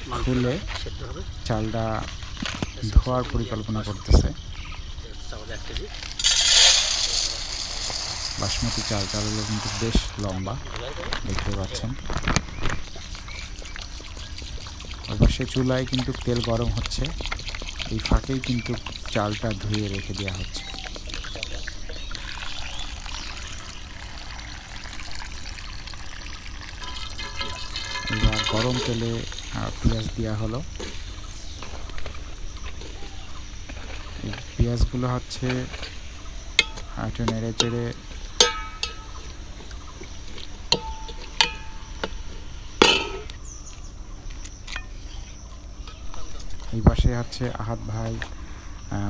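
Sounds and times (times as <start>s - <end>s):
water pouring and trickling: 6.0s - 12.0s, 12.7s - 30.6s
steel ladle clanking on metal pot: 26.8s - 29.0s, 36.6s - 39.3s, 40.7s - 42.2s, 42.8s - 43.3s.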